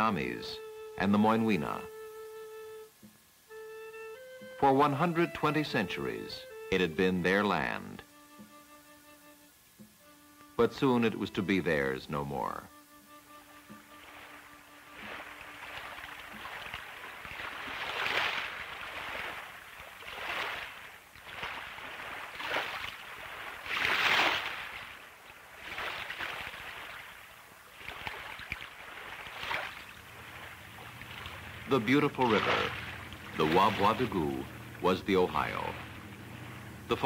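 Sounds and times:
small waves splashing over rocks: 13.9s - 37.0s.

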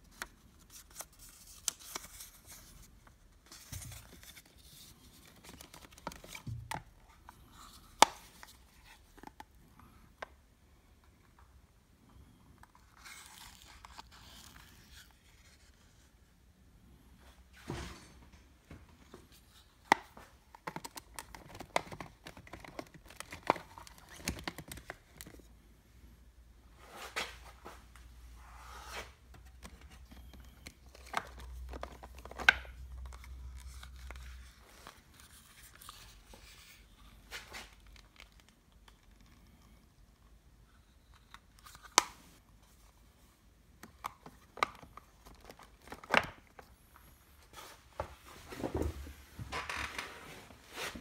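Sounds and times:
card rustling and crinkling: 0.0s - 10.2s, 12.6s - 16.1s, 19.1s - 25.6s, 28.5s - 39.8s, 40.8s - 49.1s.

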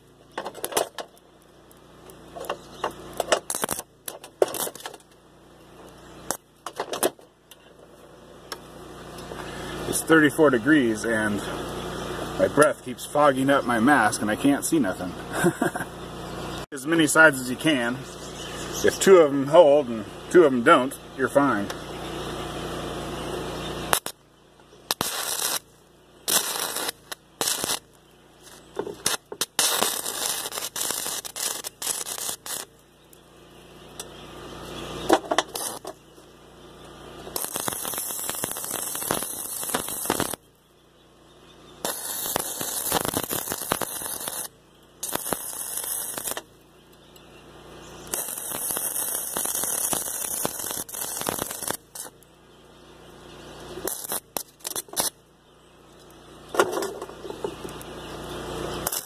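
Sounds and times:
welding arc crackling: 0.0s - 16.0s, 18.6s - 59.0s.

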